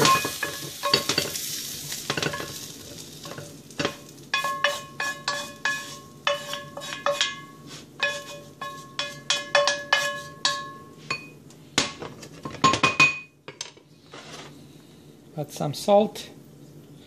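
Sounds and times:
metal utensil scraping skillet: 0:00.0 - 0:11.3.

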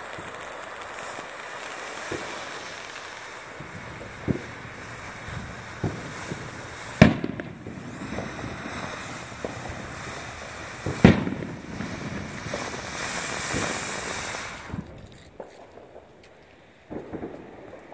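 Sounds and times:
firework fountain hissing: 0:00.0 - 0:15.4
firework pops: 0:00.0 - 0:17.9.

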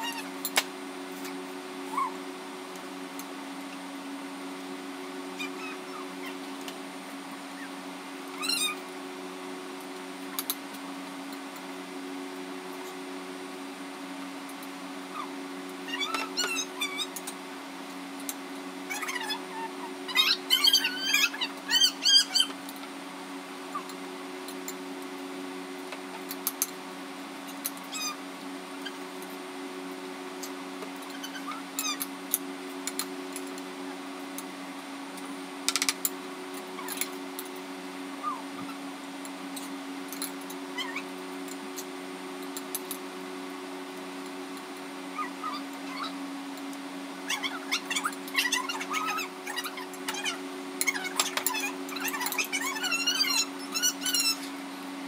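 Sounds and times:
low electrical hum: 0:00.0 - 0:55.0
high wavering squeaks: 0:18.9 - 0:22.5, 0:47.3 - 0:54.5.

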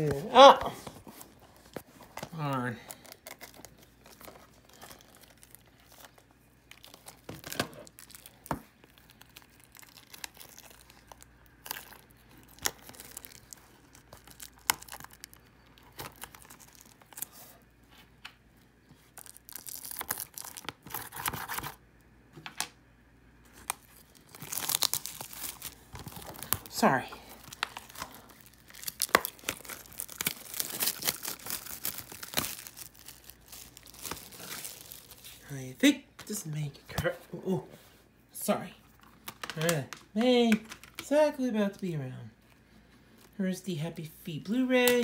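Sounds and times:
plastic film crinkling and tearing: 0:00.0 - 0:17.7, 0:19.0 - 0:21.8, 0:23.5 - 0:35.6.

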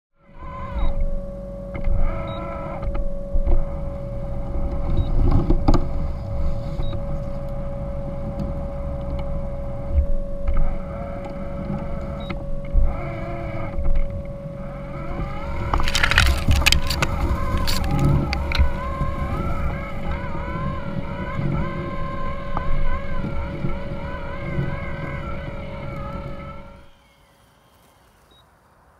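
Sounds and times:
lawnmower motor hum: 0:03.5 - 0:27.0
wheels rumbling over grass: 0:14.6 - 0:28.3
branches crackling and scraping: 0:14.9 - 0:21.6, 0:26.8 - 0:28.8.

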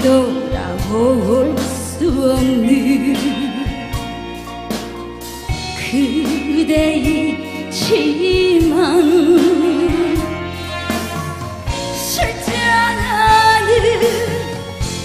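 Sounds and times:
woman singing with vibrato: 0:00.0 - 0:04.0, 0:05.8 - 0:14.7
band accompaniment: 0:00.0 - 0:15.0.

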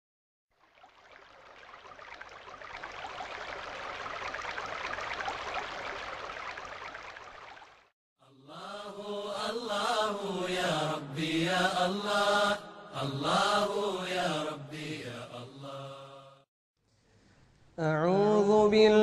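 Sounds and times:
rushing pattering water-like noise: 0:00.5 - 0:07.9
person chanting: 0:08.2 - 0:16.4, 0:17.8 - 0:19.0.

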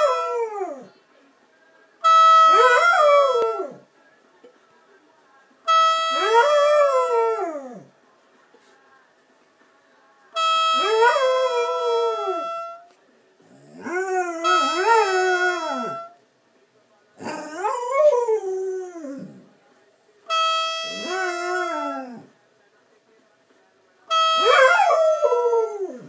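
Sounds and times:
steady horn tone: 0:05.7 - 0:06.4, 0:10.4 - 0:13.0, 0:14.4 - 0:16.2, 0:20.3 - 0:21.4, 0:24.1 - 0:24.7.

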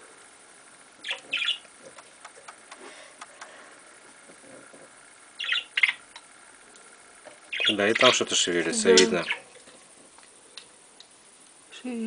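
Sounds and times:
budgerigar squawks: 0:01.0 - 0:01.6, 0:05.4 - 0:06.0.

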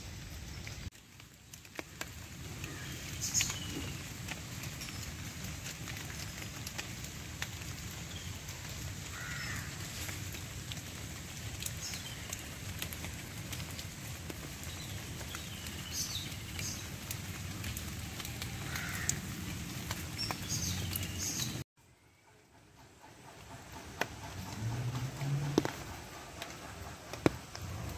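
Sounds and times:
rain on leaves: 0:00.0 - 0:21.6, 0:23.3 - 0:27.9
water drips ticking: 0:00.6 - 0:21.6
birds calling: 0:07.8 - 0:10.8, 0:14.5 - 0:21.6, 0:22.2 - 0:27.9.

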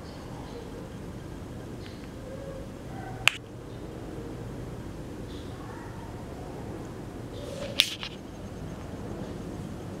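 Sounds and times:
low background noise: 0:00.0 - 0:10.0
sharp click: 0:03.3 - 0:03.5, 0:07.6 - 0:08.2.

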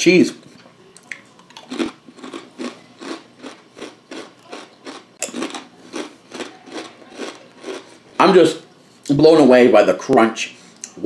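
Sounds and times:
potato chips being chewed: 0:01.0 - 0:08.2.

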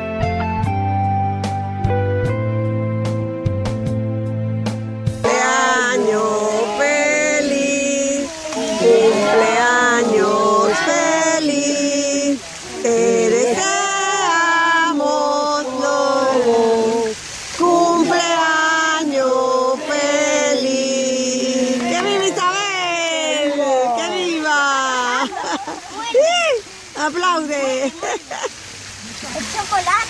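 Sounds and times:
children and woman singing: 0:05.2 - 0:25.6.

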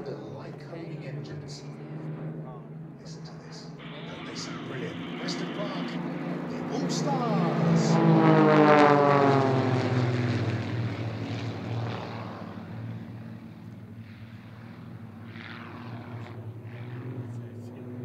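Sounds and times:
propeller planes droning overhead: 0:00.0 - 0:18.0.

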